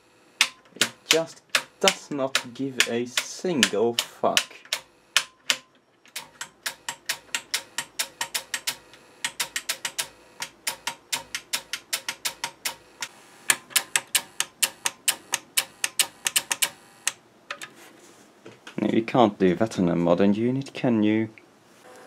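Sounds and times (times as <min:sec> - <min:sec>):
power switch clicking: 0:00.4 - 0:17.2.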